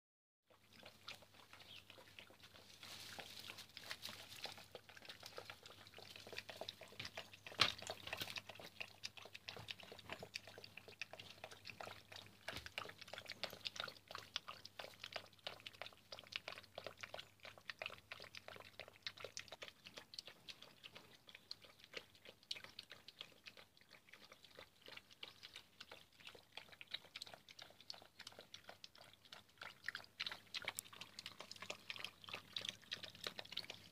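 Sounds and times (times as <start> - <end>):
puppies chewing food: 0.5 - 33.9.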